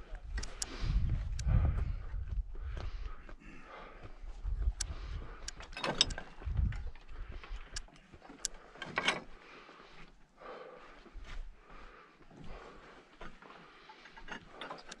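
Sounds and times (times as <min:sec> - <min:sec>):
low rumbles: 0:00.0 - 0:07.9.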